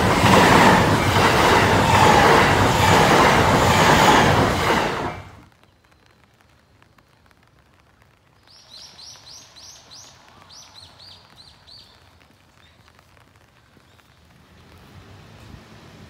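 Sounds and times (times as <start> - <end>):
faint steady hiss: 5.0 - 16.0.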